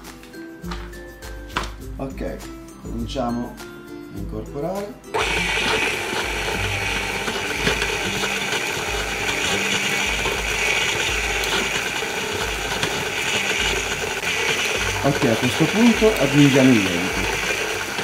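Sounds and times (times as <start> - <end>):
mixer gear clatter: 5.2 - 18.0
stand mixer motor whir: 5.2 - 18.0.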